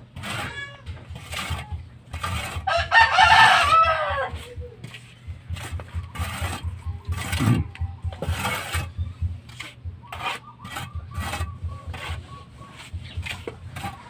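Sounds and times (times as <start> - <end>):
hand tool scraping cement wall: 0.0 - 14.0.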